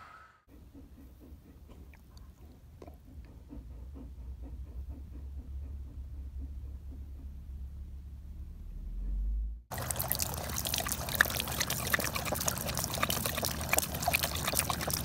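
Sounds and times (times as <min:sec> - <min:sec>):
low rumble: 0:04.4 - 0:09.7
dog lapping water: 0:09.7 - 0:15.0
water running from tap: 0:09.7 - 0:15.0.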